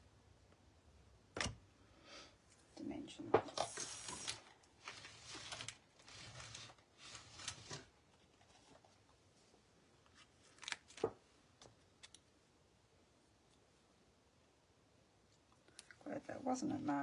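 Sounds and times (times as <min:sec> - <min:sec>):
paper rustling: 0:03.6 - 0:09.1, 0:10.0 - 0:11.2.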